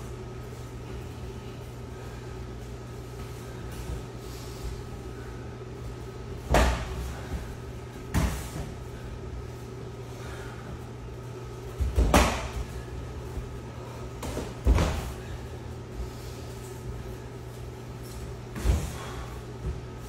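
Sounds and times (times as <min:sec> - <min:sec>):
steady background hum: 0:00.0 - 0:20.0
punches and kicks thumping: 0:06.4 - 0:07.4, 0:08.0 - 0:08.8, 0:11.8 - 0:12.8, 0:14.2 - 0:15.2.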